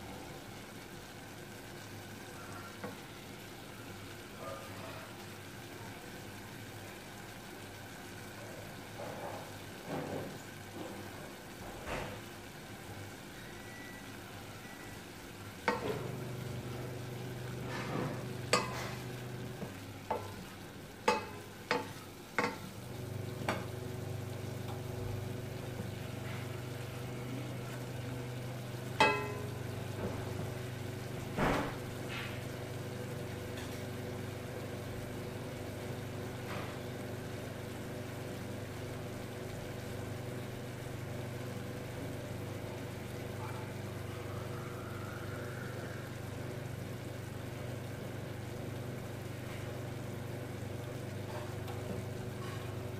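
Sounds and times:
cooking sizzle: 0:00.0 - 0:52.9
induction hob hum: 0:00.0 - 0:52.9
wooden spoon stirring in pot: 0:15.6 - 0:34.2
spoon knocking against pot: 0:18.5 - 0:19.0, 0:21.0 - 0:22.7, 0:29.0 - 0:29.5.

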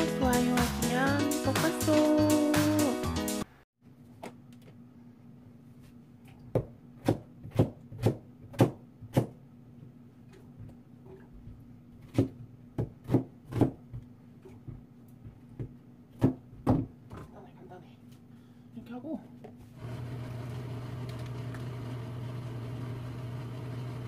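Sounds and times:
knife chopping on plastic board: 0:06.5 - 0:09.4, 0:12.0 - 0:14.1, 0:15.6 - 0:16.9.

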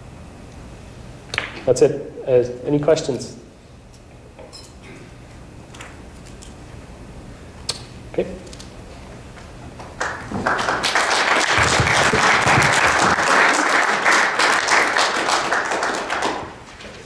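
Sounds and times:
audience applauding: 0:10.0 - 0:16.7.

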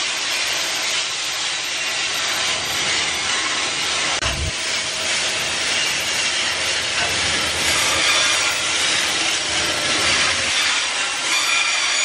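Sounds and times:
train wheels grinding on rails: 0:00.0 - 0:12.0.

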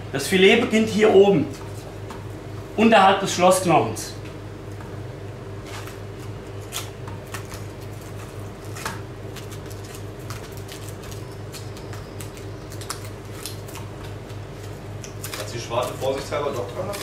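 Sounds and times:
steady low hum: 0:00.0 - 0:17.0
knife cutting meat: 0:12.9 - 0:17.0.

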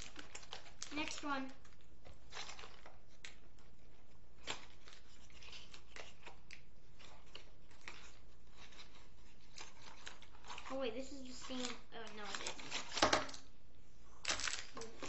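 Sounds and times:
toy packaging crinkling and snapping: 0:00.0 - 0:13.5, 0:14.2 - 0:15.0.

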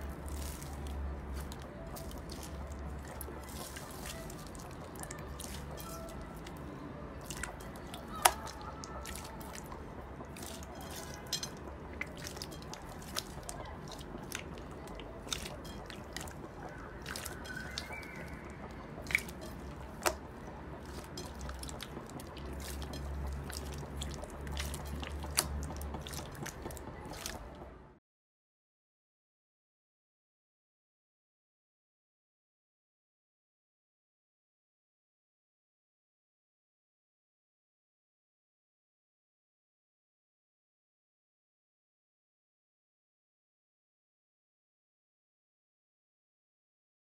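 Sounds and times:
slime squelching with wet clicks: 0:00.0 - 0:27.7.

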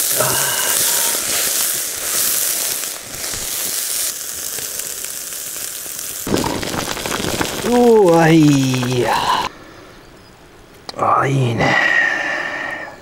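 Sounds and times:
fat crackling and spitting: 0:00.0 - 0:09.5
meat sizzling on a grill: 0:00.0 - 0:09.5.

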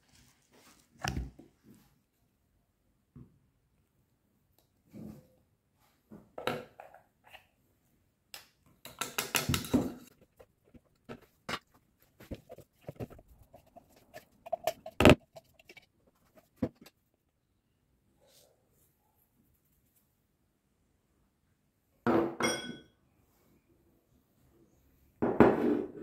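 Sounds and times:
spatula scraping plastic bowl: 0:09.4 - 0:17.0.

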